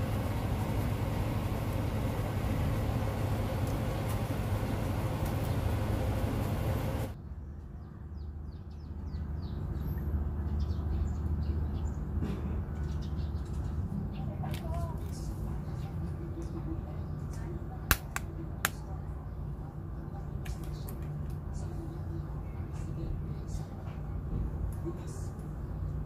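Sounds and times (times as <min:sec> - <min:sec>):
low hum: 0:00.0 - 0:12.0
small birds chirping: 0:05.1 - 0:17.9.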